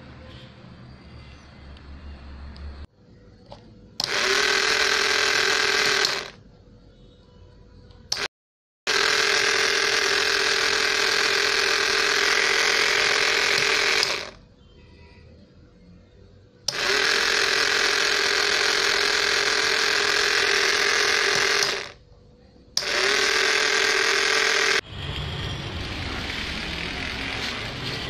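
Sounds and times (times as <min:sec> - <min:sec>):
small electric motor whining: 0:04.0 - 0:06.4, 0:08.9 - 0:14.4, 0:16.7 - 0:22.0, 0:22.8 - 0:24.8
toy car rolling on tiles: 0:04.1 - 0:06.4, 0:08.9 - 0:14.4, 0:16.7 - 0:22.0.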